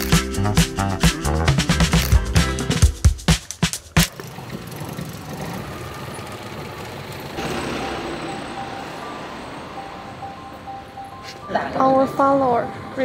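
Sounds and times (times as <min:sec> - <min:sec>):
street traffic engines: 0:03.5 - 0:13.0
loud vehicle passing: 0:04.1 - 0:12.1.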